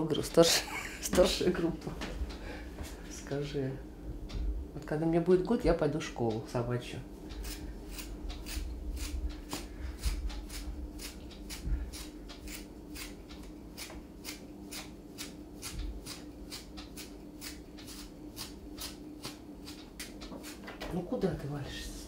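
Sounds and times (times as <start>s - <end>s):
faint steady hum: 0.0s - 22.0s
strokes pulling through dog hair: 7.3s - 20.6s.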